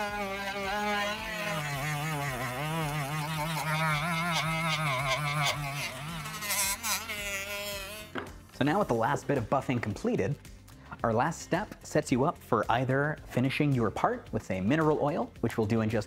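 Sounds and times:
rotary tool motor whine: 0:00.0 - 0:08.2.

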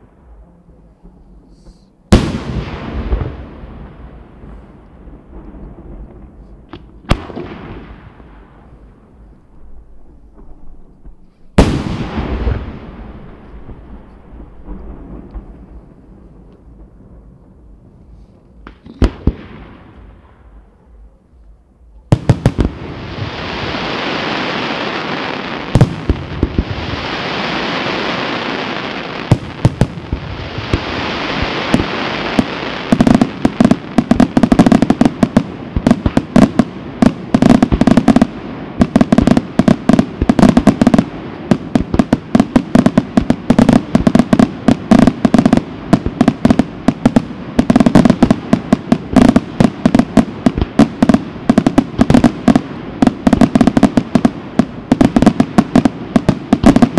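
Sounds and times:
firework bangs: 0:01.6 - 0:09.2, 0:10.2 - 0:21.1, 0:22.1 - 0:56.9
crackling firework hisses: 0:22.4 - 0:56.9.

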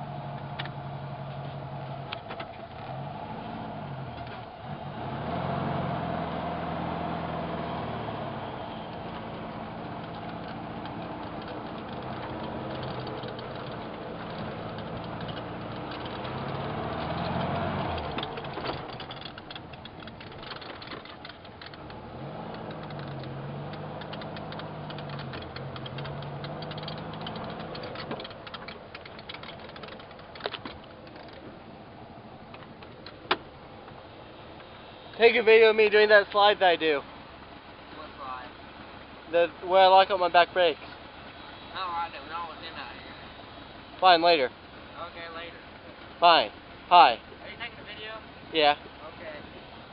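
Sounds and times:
vehicle engine revving: 0:00.0 - 0:49.9
sharp clicks: 0:09.9 - 0:31.5.

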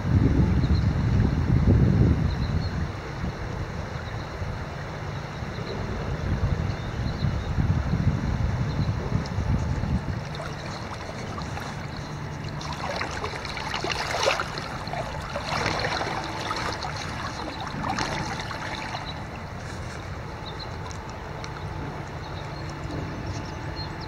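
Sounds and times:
river water over gravel: 0:09.2 - 0:23.9.

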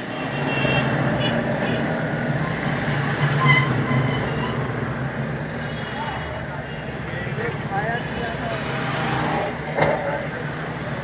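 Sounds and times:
street traffic: 0:00.0 - 0:11.0
crowd noise: 0:04.7 - 0:11.0.

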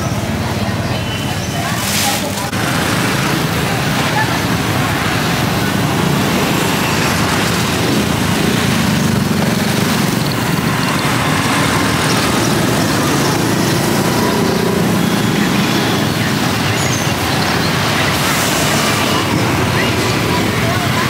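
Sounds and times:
vehicle engine running: 0:00.0 - 0:21.0.

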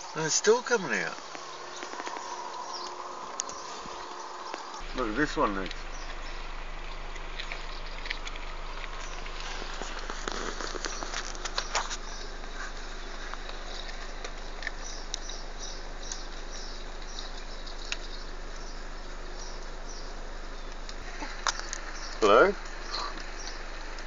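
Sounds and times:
steady hiss: 0:00.0 - 0:06.8.

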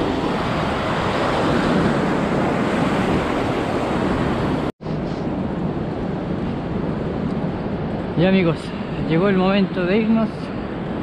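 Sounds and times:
surf breaking on beach: 0:00.0 - 0:05.2
wind on microphone: 0:00.0 - 0:11.0.

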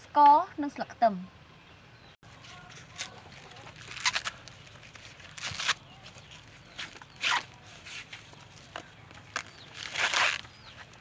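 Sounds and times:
corn husks ripping: 0:02.5 - 0:11.0.

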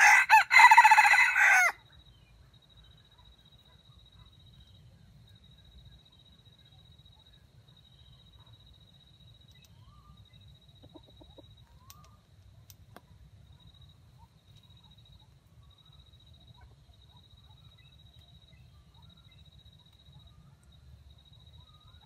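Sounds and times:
junglefowl clucking: 0:10.8 - 0:12.1.

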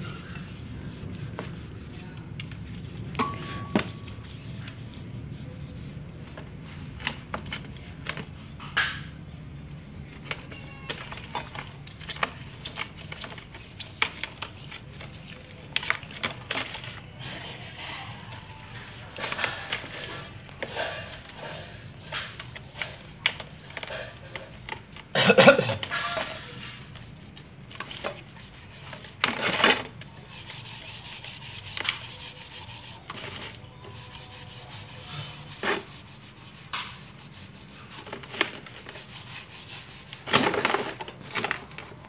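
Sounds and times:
scouring pad scrubbing metal: 0:00.0 - 0:07.3, 0:12.0 - 0:40.7.

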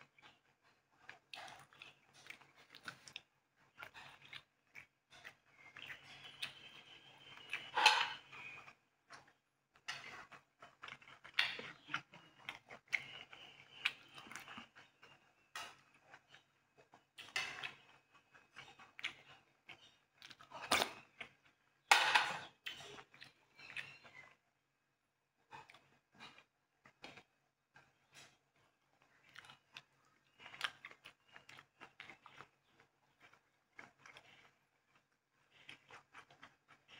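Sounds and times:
metal spoon scraping ceramic bowls: 0:07.6 - 0:08.2, 0:21.9 - 0:22.5.

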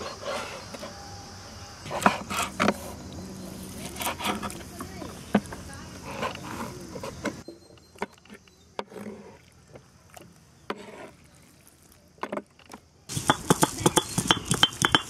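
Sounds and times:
stone roller grinding chillies: 0:00.0 - 0:01.1, 0:01.8 - 0:15.0.

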